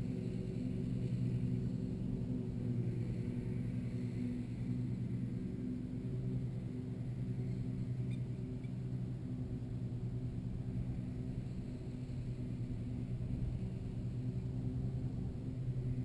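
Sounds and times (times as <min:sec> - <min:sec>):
low multi-tone hum: 0:00.0 - 0:16.0
wind rumbling on microphone: 0:00.0 - 0:16.0.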